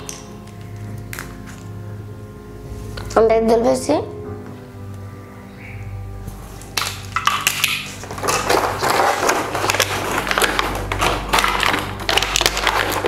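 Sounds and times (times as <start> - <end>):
plastic toys clattering on tray: 6.8 - 13.0.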